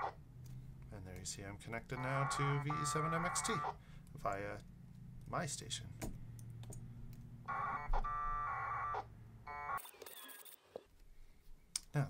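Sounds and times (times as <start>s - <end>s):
warbling modem tones: 1.8s - 3.8s, 7.5s - 10.7s.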